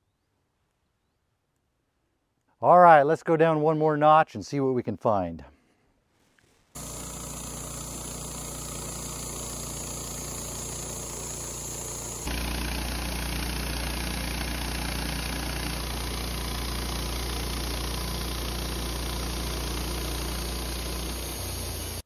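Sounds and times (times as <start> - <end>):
bandsaw sawmill cutting wood: 6.8 - 22.0.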